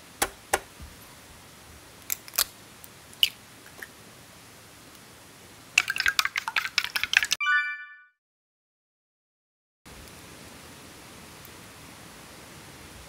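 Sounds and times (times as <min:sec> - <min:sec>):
egg cracking taps: 0:05.8 - 0:07.4.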